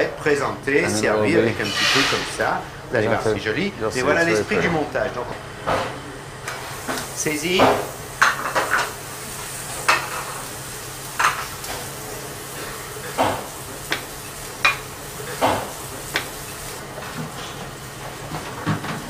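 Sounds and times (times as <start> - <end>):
food sizzling in a pan: 6.6 - 18.4.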